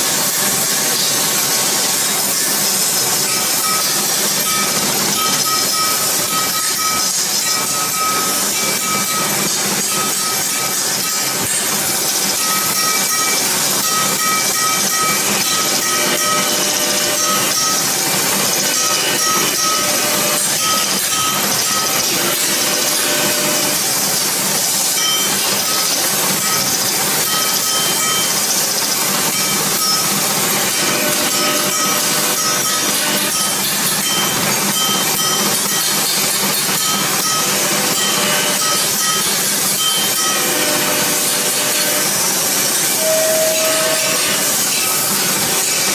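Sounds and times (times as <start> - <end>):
lathe tool scraping brass: 0.5 - 45.9
thin high tone: 42.8 - 45.9.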